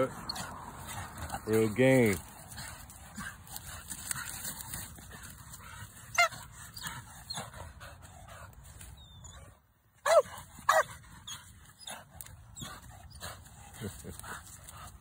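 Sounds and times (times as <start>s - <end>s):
dog whining yelps: 6.1s - 7.4s, 9.0s - 12.0s.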